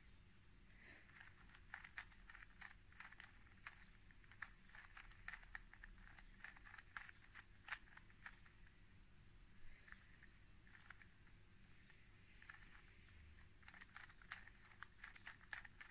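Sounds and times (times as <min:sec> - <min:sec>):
puzzle cube clicking: 0:01.1 - 0:08.5, 0:12.4 - 0:15.9.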